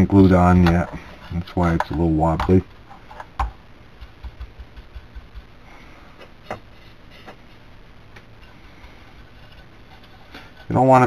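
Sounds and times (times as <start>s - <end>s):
steady low hiss: 0.0s - 11.0s.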